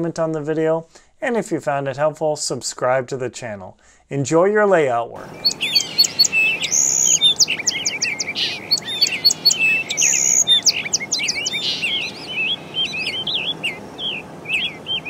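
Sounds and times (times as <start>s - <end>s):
birds chirping and singing: 5.2s - 15.0s.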